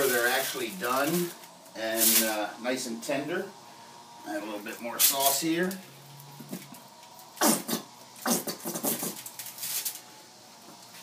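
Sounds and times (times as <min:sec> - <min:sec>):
squeeze bottle squirting: 0:07.4 - 0:10.0.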